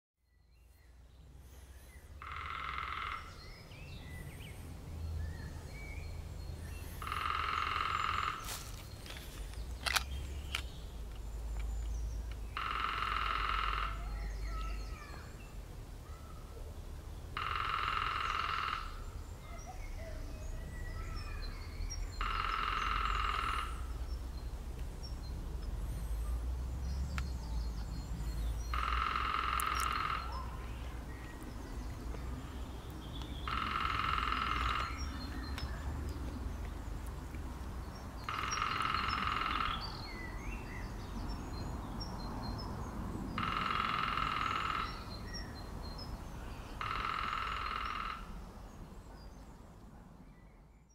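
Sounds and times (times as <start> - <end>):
woodpecker drumming on a branch: 2.1 - 3.8, 6.7 - 15.2, 17.3 - 19.7, 22.0 - 24.5, 27.2 - 32.3, 33.0 - 37.1, 37.8 - 41.7, 43.3 - 48.8.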